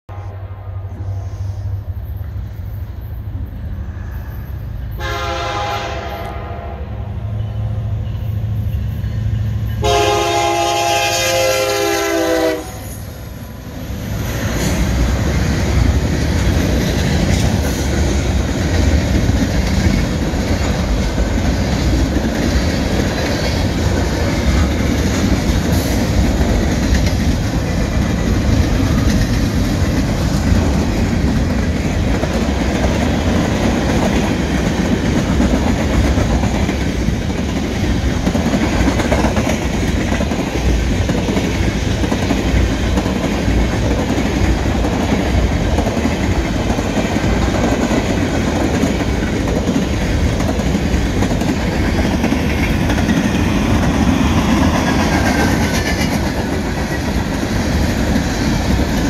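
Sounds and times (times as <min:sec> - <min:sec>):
freight train rumbling: 0:00.1 - 0:59.0
train horn blasts: 0:04.9 - 0:07.6, 0:09.7 - 0:13.0.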